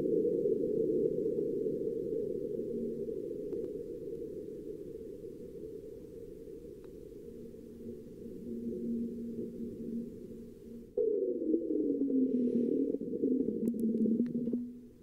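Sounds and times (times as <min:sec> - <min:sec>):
faint clicks: 0:03.5 - 0:03.8, 0:06.7 - 0:07.0, 0:13.5 - 0:14.8
low seismic rumble: 0:07.3 - 0:15.0.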